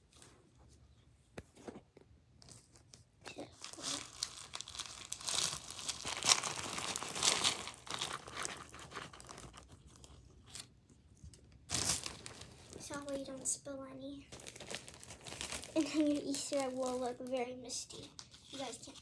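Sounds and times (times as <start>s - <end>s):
plastic bag crinkling: 3.3s - 10.7s, 11.6s - 13.6s, 14.2s - 19.0s.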